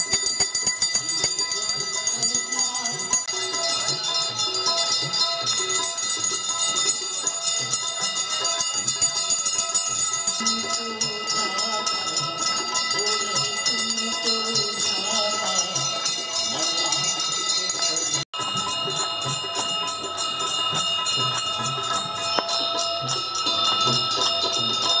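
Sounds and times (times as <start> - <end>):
brass bells ringing: 0.0 - 25.0
singing and music: 0.5 - 25.0.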